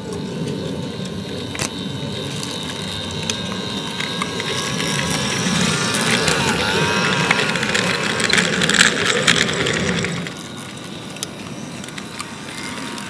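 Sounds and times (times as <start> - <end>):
model train running past: 0.0 - 13.0
wheels clicking on track: 0.0 - 13.0.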